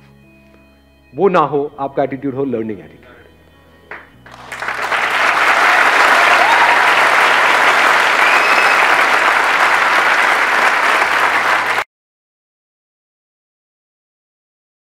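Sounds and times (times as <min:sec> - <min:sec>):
audience clapping: 0:03.9 - 0:11.9.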